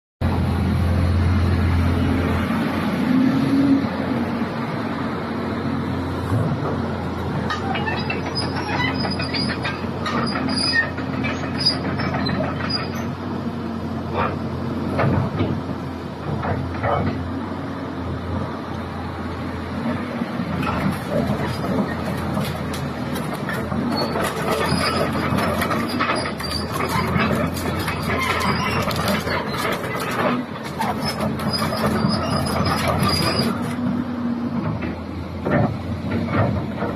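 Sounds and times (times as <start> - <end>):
excavator diesel engine running: 0.2 - 36.9
high metallic squeaks: 7.5 - 13.2, 23.5 - 33.7
machine clanks: 20.6 - 33.8.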